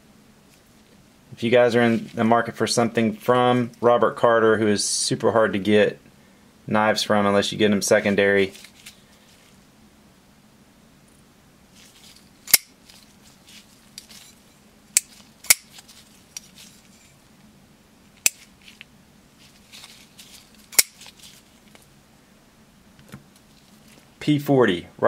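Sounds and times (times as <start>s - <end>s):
knife handling noise: 8.5s - 9.6s, 11.8s - 17.3s, 18.1s - 21.9s
knife blade snapping open and shut: 12.5s - 12.7s, 15.0s - 15.8s, 18.2s - 18.5s, 20.7s - 21.1s.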